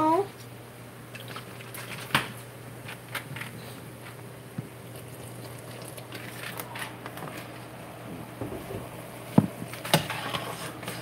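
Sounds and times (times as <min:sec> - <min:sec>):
low steady hum: 0:00.0 - 0:11.0
broth bubbling and popping: 0:04.8 - 0:06.6.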